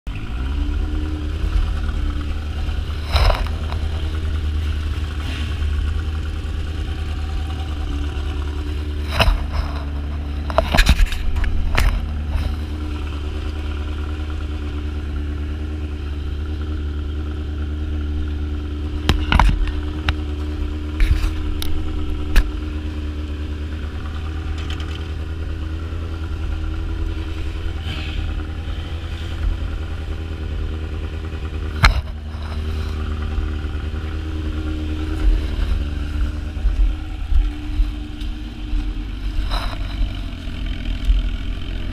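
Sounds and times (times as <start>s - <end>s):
motorcycle engine idling: 0.1s - 41.9s
sharp clicks and clatters: 1.5s - 7.8s, 8.4s - 12.9s, 24.4s - 25.2s, 31.6s - 33.8s.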